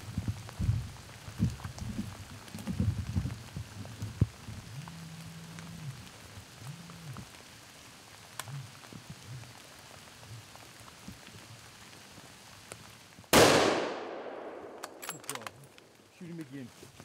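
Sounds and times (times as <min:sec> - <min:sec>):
light rain patter: 0:00.0 - 0:17.0
loud bow shot: 0:13.4 - 0:14.8.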